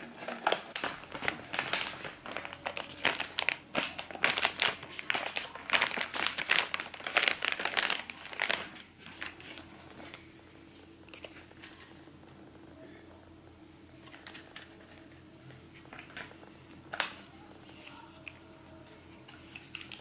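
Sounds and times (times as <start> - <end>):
plastic pouches crinkling: 0.0 - 10.2.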